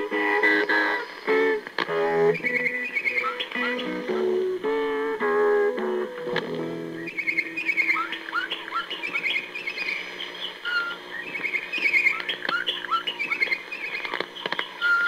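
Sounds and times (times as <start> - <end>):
recorded bird calls over radio: 2.2 - 4.2, 6.9 - 15.0.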